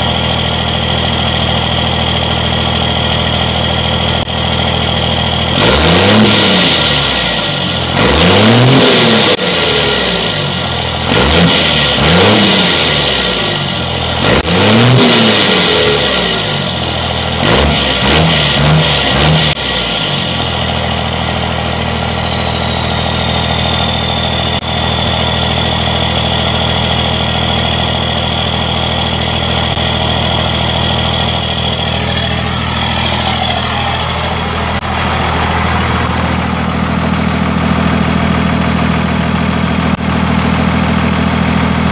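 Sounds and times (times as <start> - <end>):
diesel engine revving and idling: 0.0 - 41.9
high turbo whistle: 19.6 - 24.6.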